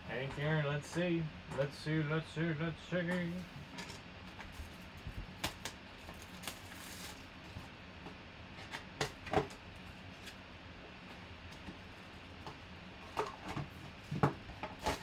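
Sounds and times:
crinkles and rustles: 3.8 - 7.7
shrink wrap and cardboard tearing: 5.4 - 7.3.

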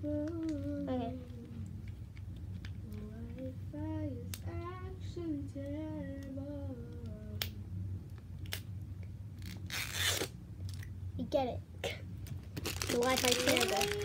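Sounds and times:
low room hum: 0.0 - 14.0
wrapping clicks: 12.2 - 14.0.

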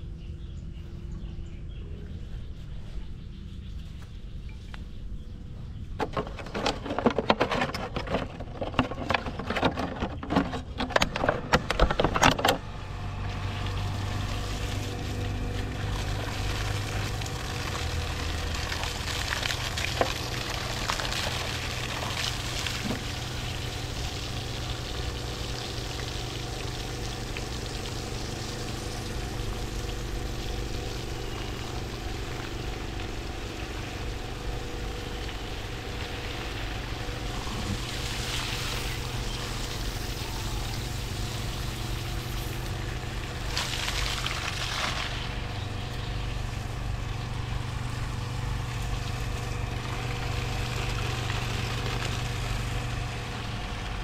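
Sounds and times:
water pump running: 6.0 - 54.0
water pouring: 13.4 - 45.5.

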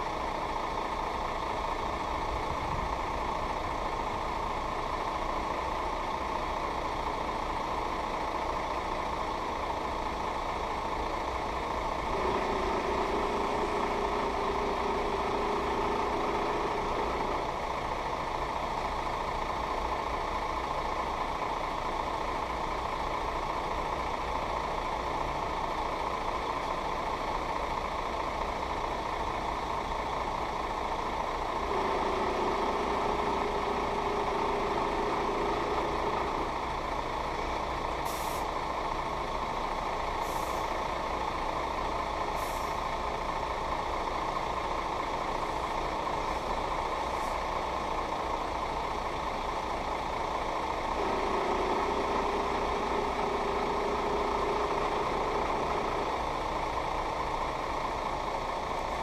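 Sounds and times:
engine hum with hiss: 0.0 - 59.0
steady mid-pitched tone: 50.9 - 56.6.

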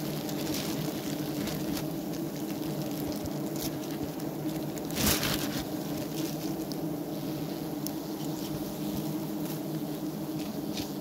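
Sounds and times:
bees humming: 0.0 - 11.0
knife cutting through honeycomb: 0.8 - 7.0.

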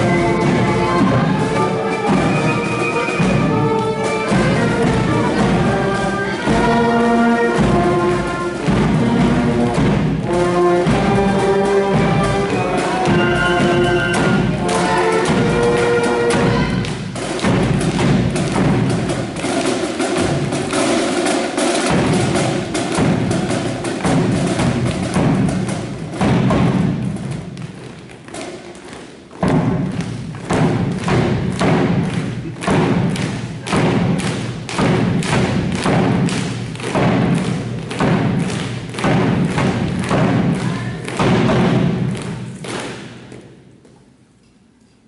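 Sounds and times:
brass band tune: 0.0 - 27.4
marching drum beat: 0.0 - 43.3.

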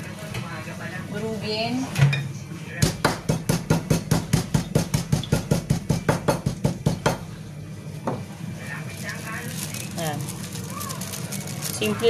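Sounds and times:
peppercorns being crushed: 8.8 - 12.0.

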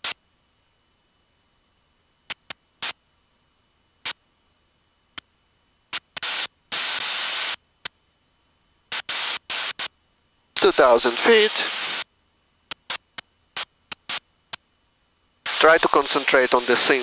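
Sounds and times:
intercom hiss bursts: 6.2 - 7.6, 8.9 - 9.9, 10.6 - 12.1, 15.4 - 17.0.

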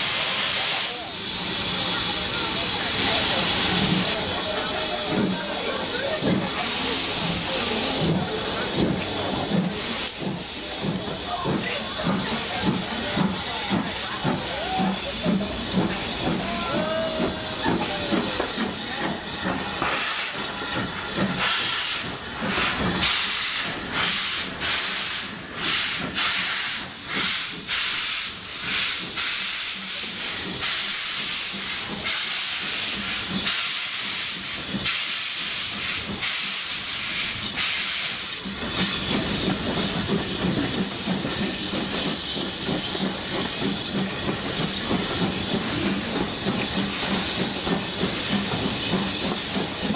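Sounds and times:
steam hissing: 0.0 - 49.9
steam locomotive exhaust beats: 0.0 - 49.9
train rumbling: 0.0 - 49.9.

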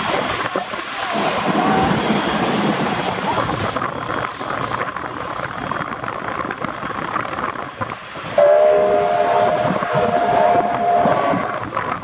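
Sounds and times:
steam train rumbling past: 0.0 - 12.0
multi-note train whistle: 8.4 - 11.6.

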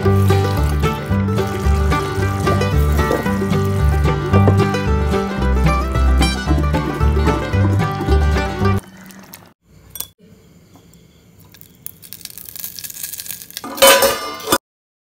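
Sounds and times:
fat sizzling on hot charcoal: 0.0 - 6.0, 11.3 - 14.6
background music: 0.0 - 8.8.

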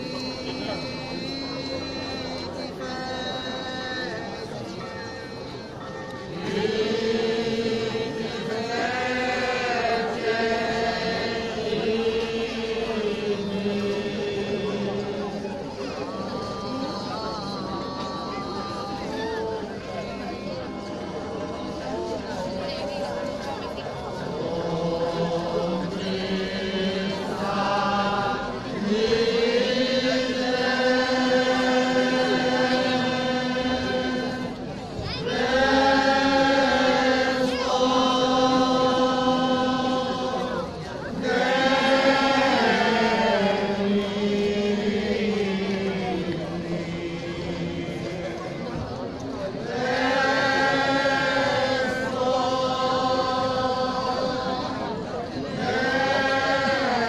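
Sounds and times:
men singing unaccompanied: 0.0 - 20.8, 24.1 - 57.0.

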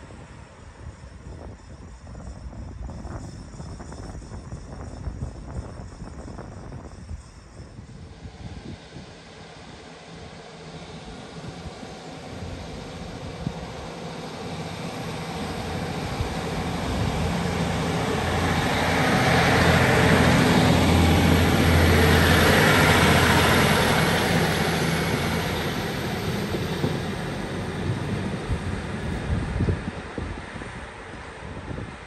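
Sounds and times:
diesel train passing: 0.0 - 32.0.

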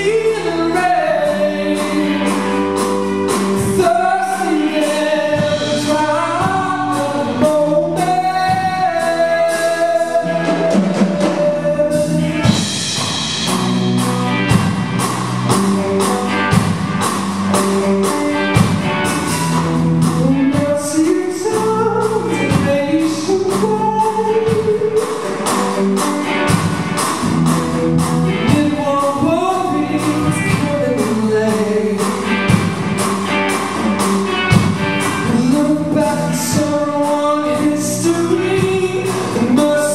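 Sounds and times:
man singing: 0.0 - 13.4, 18.4 - 26.5, 28.2 - 32.7, 34.4 - 39.9
drum kit beat: 0.0 - 39.9
electric guitars: 0.0 - 39.9.

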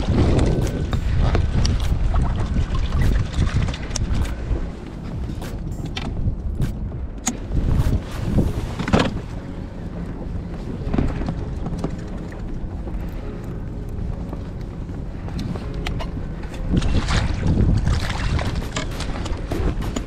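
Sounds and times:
wind buffeting microphone: 0.0 - 20.0
fishing tackle knocks and clicks: 0.2 - 4.4, 5.3 - 8.0, 15.3 - 20.0.

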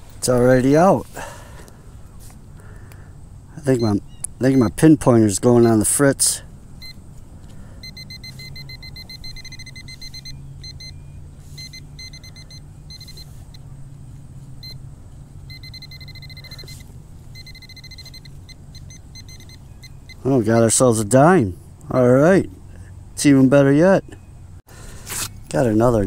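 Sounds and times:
low steady hum: 0.0 - 26.0
electronic beeping pulses: 7.8 - 13.6, 15.4 - 20.8.

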